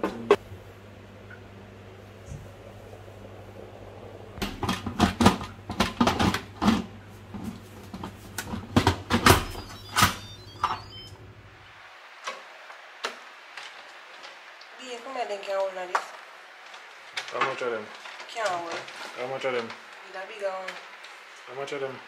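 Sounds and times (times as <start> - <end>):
steady low hum: 0.0 - 15.4.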